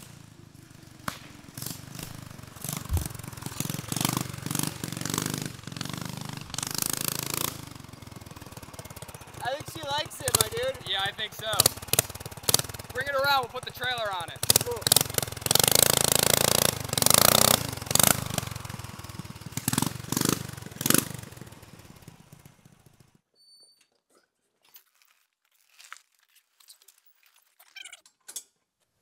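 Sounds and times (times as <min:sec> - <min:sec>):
sharp cracks: 0:00.0 - 0:21.4
go-kart engine running hard: 0:00.0 - 0:23.1.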